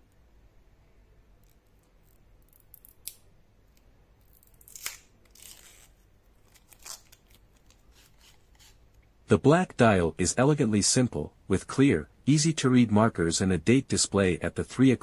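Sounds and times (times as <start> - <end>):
plastic film peeling crinkles: 4.2 - 8.9.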